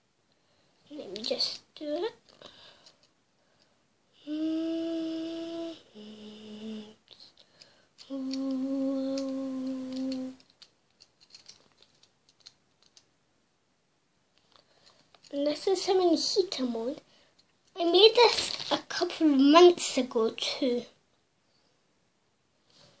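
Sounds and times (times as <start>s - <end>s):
boy humming: 4.1s - 7.3s, 8.0s - 10.5s
lego pieces clicking: 7.4s - 13.1s.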